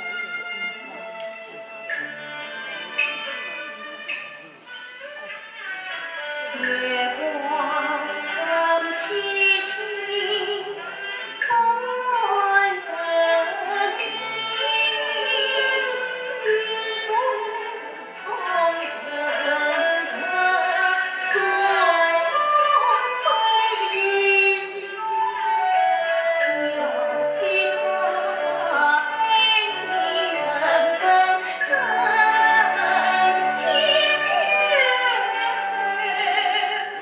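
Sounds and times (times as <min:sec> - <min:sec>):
instrumental accompaniment: 0:00.0 - 0:37.0
woman singing opera style: 0:06.5 - 0:37.0.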